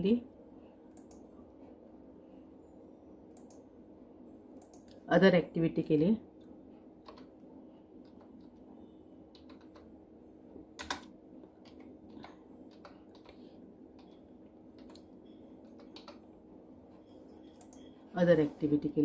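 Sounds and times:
low steady hum: 0:00.0 - 0:19.0
computer keyboard key clicks: 0:09.3 - 0:09.9, 0:10.8 - 0:11.9, 0:15.7 - 0:16.2.

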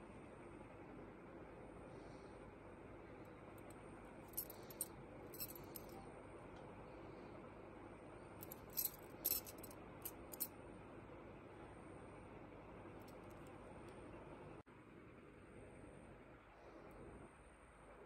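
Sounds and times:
metal bangles clinking: 0:04.2 - 0:06.0, 0:08.4 - 0:10.5.

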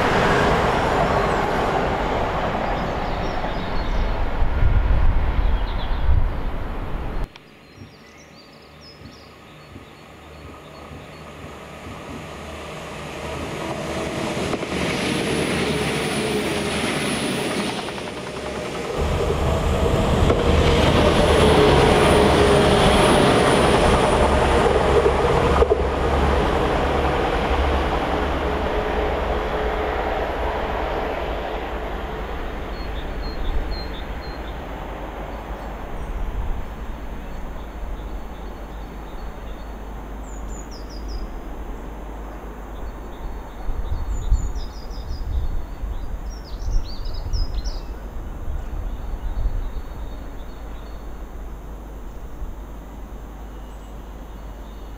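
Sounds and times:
passenger train passing: 0:00.0 - 0:07.3, 0:10.0 - 0:54.9
steady train tone: 0:00.0 - 0:07.3, 0:10.2 - 0:44.2
rumble of train wheels: 0:00.0 - 0:54.9.

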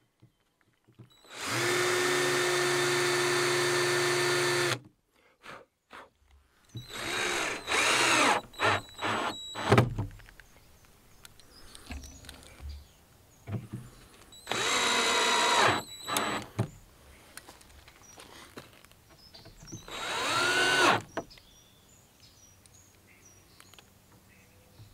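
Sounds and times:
power drill running: 0:01.2 - 0:04.8, 0:06.8 - 0:09.8, 0:14.4 - 0:16.6, 0:19.8 - 0:21.1.

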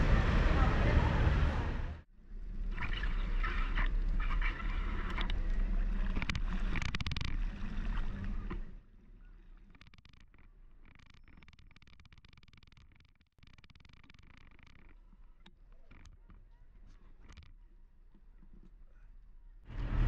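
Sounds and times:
low traffic rumble: 0:00.0 - 0:06.0, 0:19.7 - 0:20.0
water sloshing under wheels: 0:00.0 - 0:11.6, 0:13.5 - 0:20.0.

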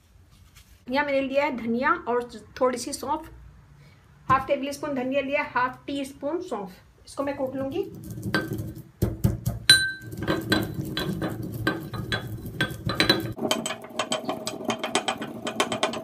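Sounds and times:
pestle pounding in metal mortar: 0:07.5 - 0:16.0.

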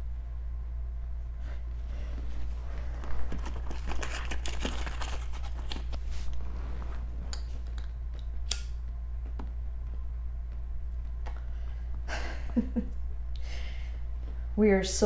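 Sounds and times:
steady low hum: 0:00.0 - 0:15.0
hands rummaging and rustling: 0:02.2 - 0:07.6
sharp click: 0:08.5 - 0:08.8.

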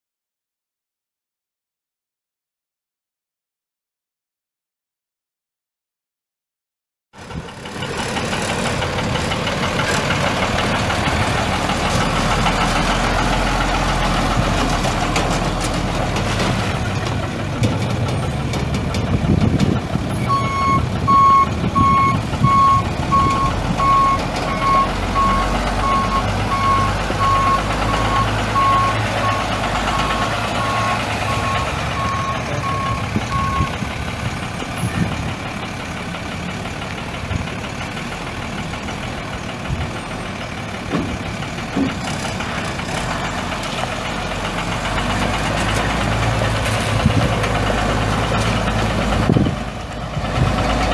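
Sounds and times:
diesel engine running: 0:07.2 - 0:50.9
backup alarm beeping: 0:20.3 - 0:33.7.

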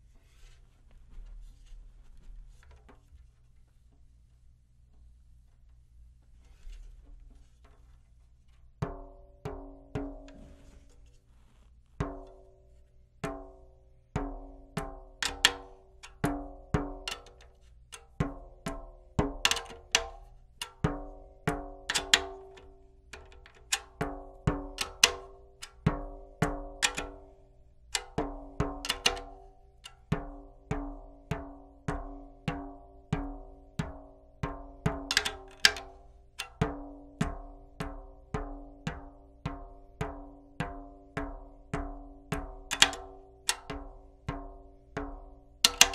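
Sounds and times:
drumhead tapping with pitched ring: 0:08.8 - 0:11.1, 0:11.9 - 0:45.9.

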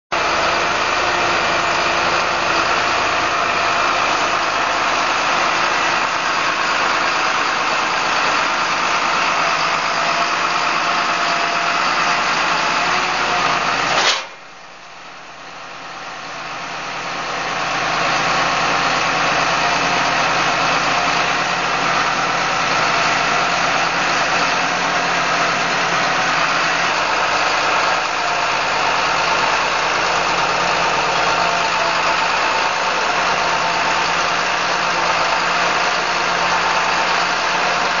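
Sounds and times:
diesel tractor engine running: 0:00.1 - 0:38.0
sharp knock: 0:14.0 - 0:14.4.

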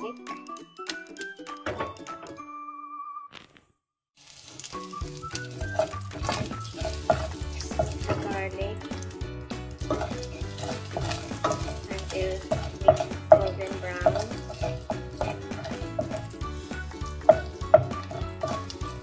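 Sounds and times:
background music: 0:00.0 - 0:03.5, 0:04.3 - 0:19.0
garlic sizzling in hot oil: 0:04.2 - 0:19.0
wooden spoon scraping a pan: 0:05.4 - 0:08.6, 0:09.8 - 0:19.0.

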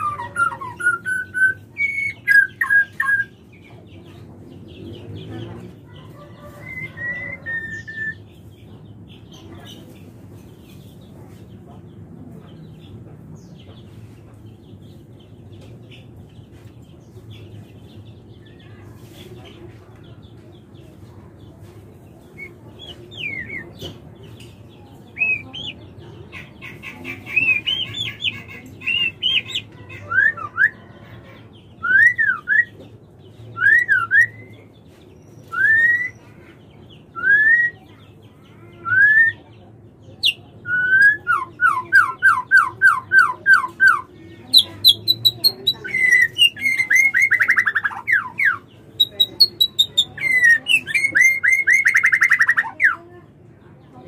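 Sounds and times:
bird whistles and chirps: 0:35.4 - 0:36.2.

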